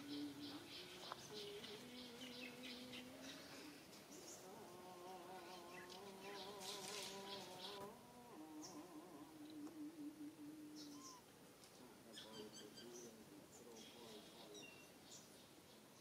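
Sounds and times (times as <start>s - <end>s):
faint bird chirps: 0.0s - 4.6s, 8.6s - 16.0s
flying insect buzzing: 0.0s - 11.2s.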